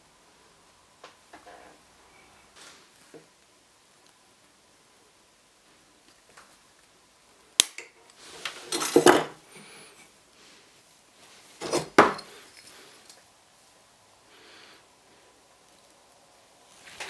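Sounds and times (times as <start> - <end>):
metal shears snipping wire: 7.6 - 7.9.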